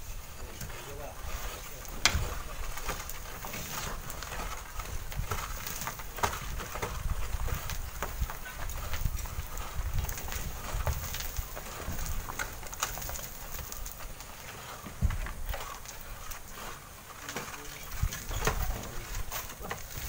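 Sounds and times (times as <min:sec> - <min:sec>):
stones and sand knocking down cliff: 0:01.6 - 0:20.0
wind buffeting microphone: 0:04.0 - 0:12.8, 0:14.9 - 0:16.6.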